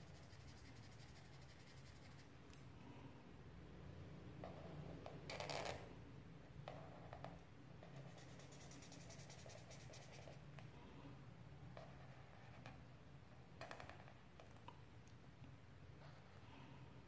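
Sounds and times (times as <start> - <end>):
marker pen scratching on paper: 7.8 - 10.4.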